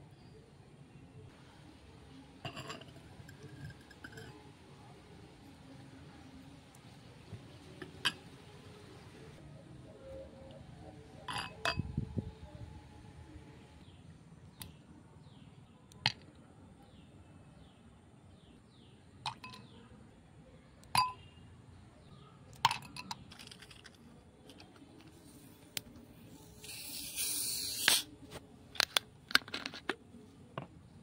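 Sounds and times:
soda bottle opening hiss: 0:26.5 - 0:28.1.

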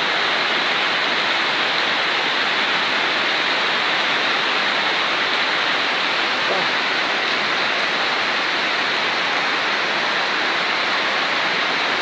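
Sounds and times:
floodwater rushing: 0:00.0 - 0:12.0
torrential rain: 0:00.0 - 0:12.0.

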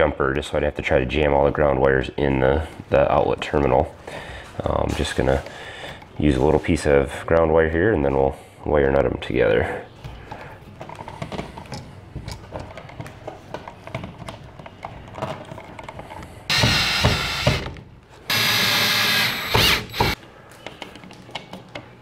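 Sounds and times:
clicks and rustling of handling: 0:08.9 - 0:16.5, 0:20.1 - 0:22.0
cordless drill driving screws: 0:16.5 - 0:17.7, 0:18.3 - 0:20.2.

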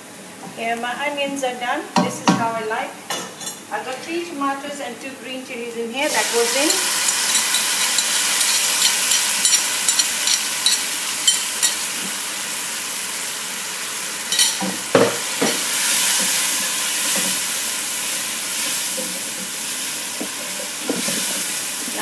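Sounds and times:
vegetables sizzling in hot oil: 0:06.0 - 0:22.0
spoon knocking and scraping pot: 0:06.7 - 0:11.8
spoon scraping a bowl: 0:06.7 - 0:11.8.

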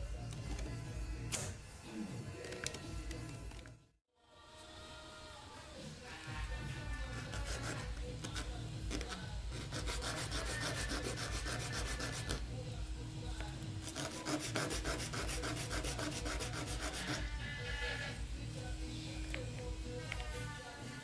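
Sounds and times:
plastic part rubbed on sandpaper: 0:07.1 - 0:12.4, 0:13.8 - 0:18.1.

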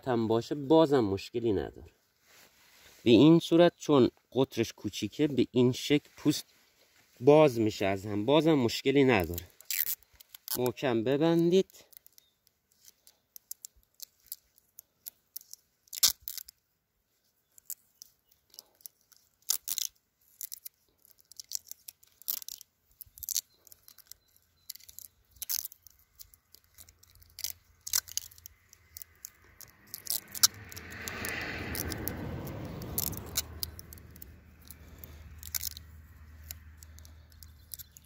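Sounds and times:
plastic tape crackling and ripping: 0:09.1 - 0:16.6, 0:17.2 - 0:38.0.

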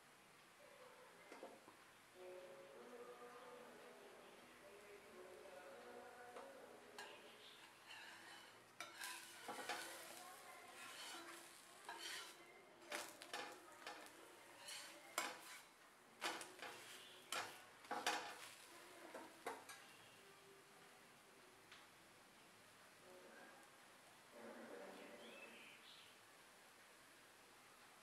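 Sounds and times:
faint sizzle: 0:00.0 - 0:28.0
metal spatula scraping a pan: 0:07.0 - 0:20.0.

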